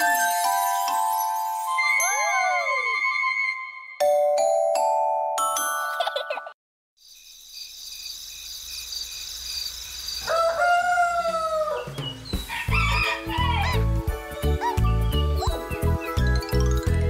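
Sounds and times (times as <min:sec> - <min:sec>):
mallet bells chime: 0:00.0 - 0:02.7, 0:04.0 - 0:06.5
upbeat children's music: 0:00.0 - 0:06.4, 0:12.4 - 0:17.0
rooster crowing: 0:10.2 - 0:13.8.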